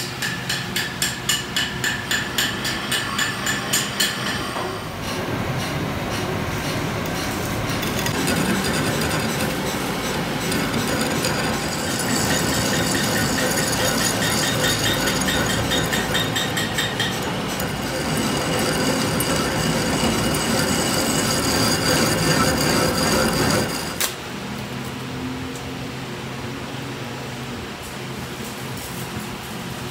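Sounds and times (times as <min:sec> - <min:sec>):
lathe cutting metal with squeal: 0:07.8 - 0:24.0.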